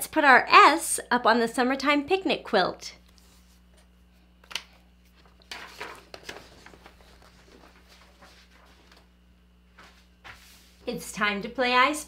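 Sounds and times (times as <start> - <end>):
faint steady hum: 0.0 - 12.0
paper rustling and clicks: 4.4 - 9.1.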